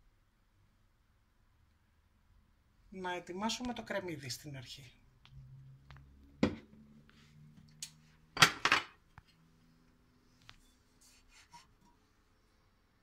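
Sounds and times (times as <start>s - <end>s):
dishes clinking: 8.4s - 9.0s.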